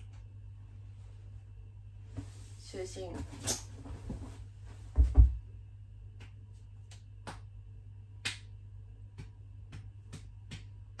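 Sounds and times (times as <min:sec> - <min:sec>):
steady low hum: 0:00.0 - 0:11.0
hand slapping a belly: 0:06.1 - 0:11.0.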